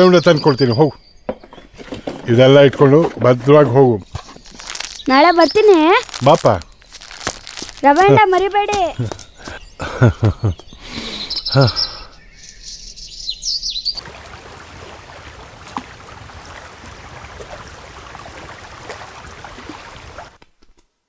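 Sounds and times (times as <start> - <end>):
birds chirping: 0.0 - 20.3
choppy lake water: 4.0 - 9.0, 14.0 - 20.4
wind hissing: 14.0 - 20.3.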